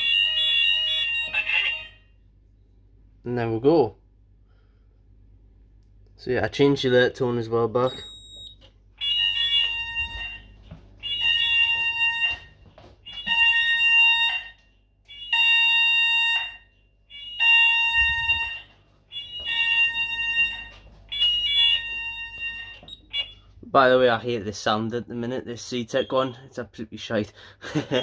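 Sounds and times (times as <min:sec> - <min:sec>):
fire alarm pulsed beeping: 0:00.0 - 0:02.2, 0:07.8 - 0:23.6, 0:25.8 - 0:26.5, 0:27.8 - 0:28.0.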